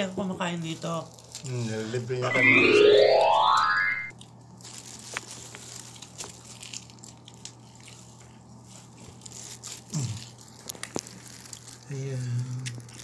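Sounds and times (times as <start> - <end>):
eating from food containers: 4.6 - 13.0.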